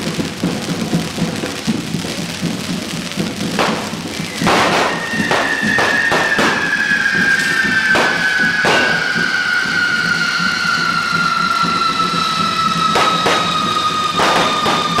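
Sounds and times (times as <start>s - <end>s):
firecracker cracks: 0.0s - 15.0s
sparkler fountains spraying: 0.0s - 15.0s
high falling whistle: 3.6s - 15.0s.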